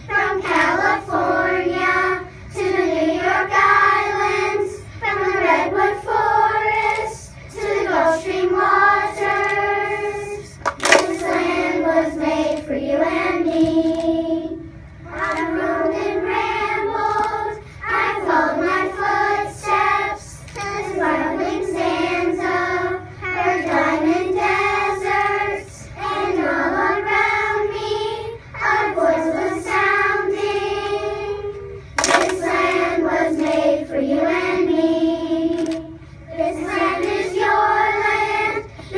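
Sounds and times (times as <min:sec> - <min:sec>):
children's choir singing: 0:00.0 - 0:38.9.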